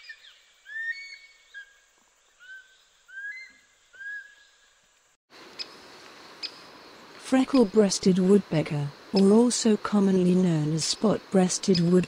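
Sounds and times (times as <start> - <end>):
bird whistling calls: 0.0 - 1.8, 2.4 - 4.6
steady hiss: 0.2 - 12.0.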